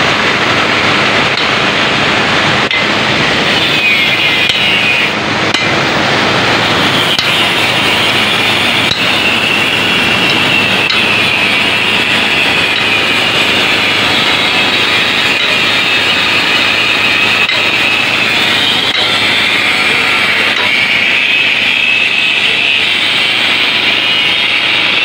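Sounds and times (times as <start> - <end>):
water rushing through sluice gate: 0.0 - 25.0
sharp metal knocks: 2.7 - 3.0, 5.5 - 5.8
angle grinder on steel: 2.7 - 5.8, 6.7 - 25.0.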